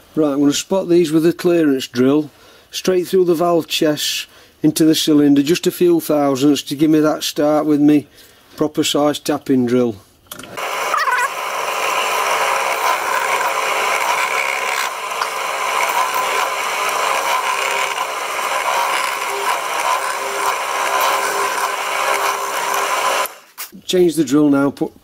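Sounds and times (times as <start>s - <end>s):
drill cutting metal: 10.6s - 23.7s
drill motor whining: 10.6s - 23.7s.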